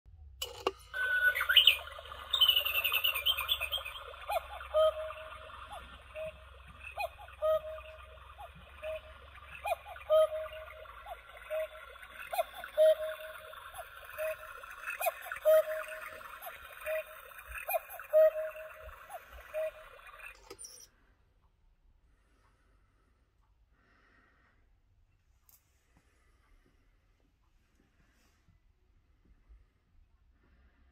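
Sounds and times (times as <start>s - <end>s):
cuckoo clock call: 0.4s - 20.9s
recorded birdsong chirps: 0.4s - 21.1s.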